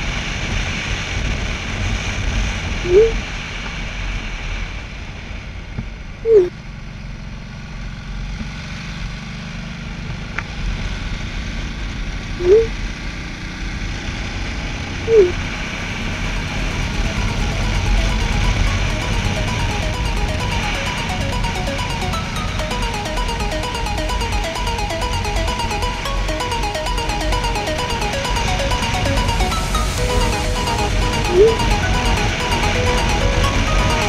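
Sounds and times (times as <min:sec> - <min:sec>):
faint music: 0:15.9 - 0:34.0.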